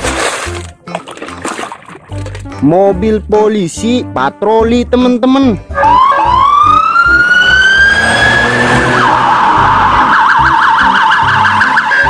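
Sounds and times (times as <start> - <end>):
police siren wailing and yelping: 5.8 - 12.0.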